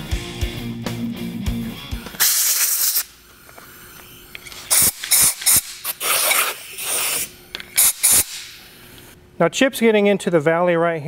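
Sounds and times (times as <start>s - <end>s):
compressed air blow gun hissing: 2.0s - 3.2s, 4.6s - 9.0s.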